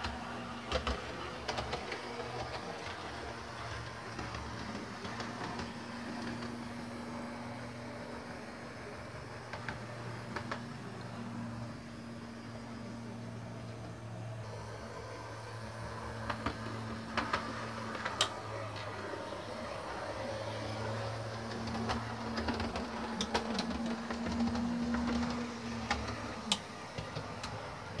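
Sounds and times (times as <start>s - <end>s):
model train motor hum: 0.0s - 28.0s
wheels clicking over rail joints: 21.0s - 28.0s.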